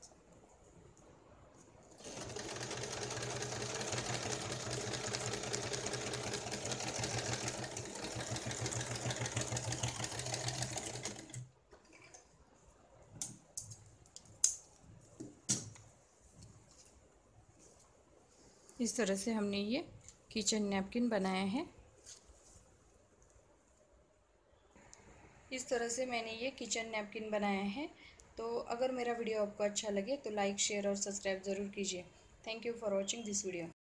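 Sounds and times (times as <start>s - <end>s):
sewing machine stitching: 1.9s - 12.1s.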